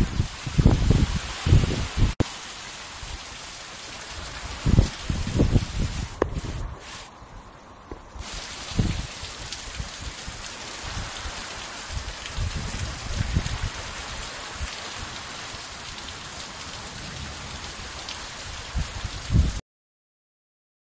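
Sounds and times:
low thunder rumbles: 0.0s - 2.2s, 4.2s - 6.8s, 7.9s - 15.6s, 16.3s - 19.6s
heavy rain falling: 0.0s - 7.2s, 7.8s - 19.6s.

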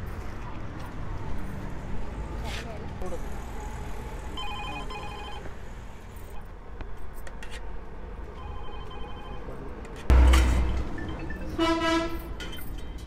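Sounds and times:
low street noise: 0.0s - 13.0s.

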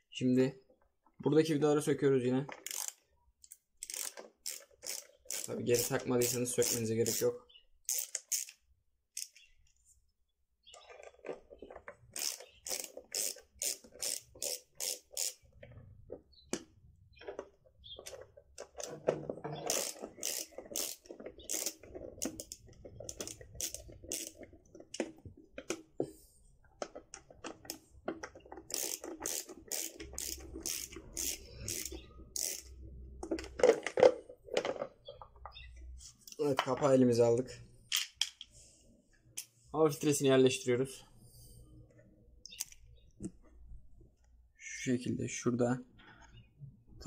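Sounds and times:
screwdriver clicking: 12.2s - 15.4s, 19.7s - 25.1s, 28.6s - 32.7s.

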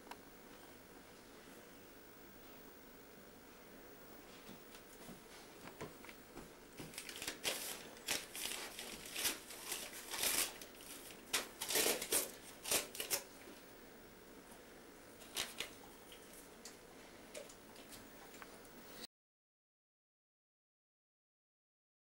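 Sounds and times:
paper rustling: 6.8s - 13.3s, 15.2s - 16.5s
wrapping paper crinkling and tearing: 6.8s - 13.4s, 15.2s - 16.5s.

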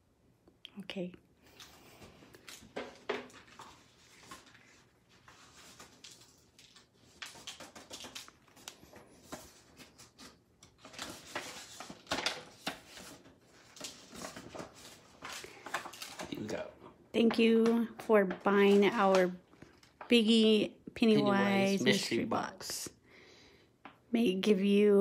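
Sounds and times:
paper rustling and crinkling: 1.5s - 16.7s, 17.8s - 20.1s.

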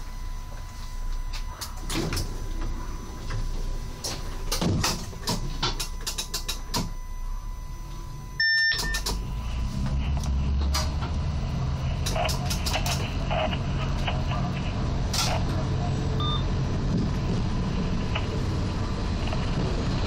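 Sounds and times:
low hum: 0.0s - 20.0s
electronic beep: 5.1s - 9.5s, 16.2s - 16.5s.

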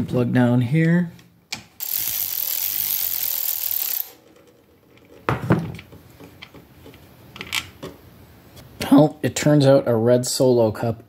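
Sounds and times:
ratchet wrench zipping: 1.8s - 4.2s.

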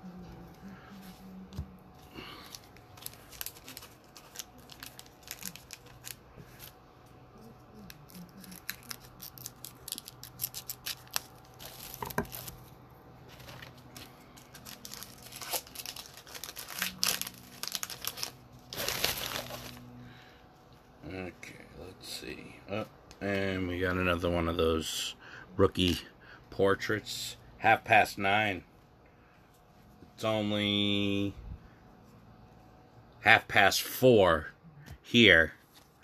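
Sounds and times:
plastic wrappers crinkling and tearing: 2.1s - 6.8s, 7.7s - 19.9s.

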